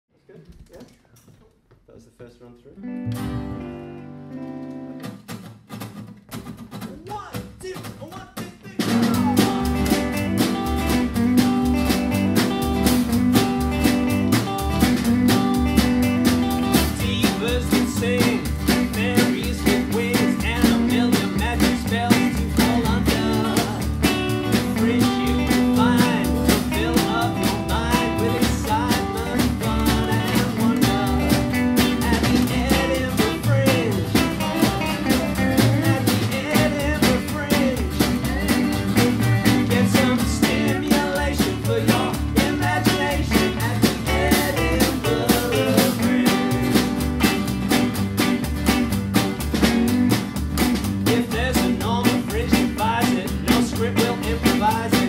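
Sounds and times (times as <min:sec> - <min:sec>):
electric guitar: 0:02.8 - 0:06.6, 0:08.8 - 0:55.0
strummed acoustic guitar: 0:02.9 - 0:55.0
man singing: 0:06.9 - 0:09.9, 0:16.7 - 0:47.0, 0:51.0 - 0:55.0
upright double bass: 0:09.0 - 0:55.0.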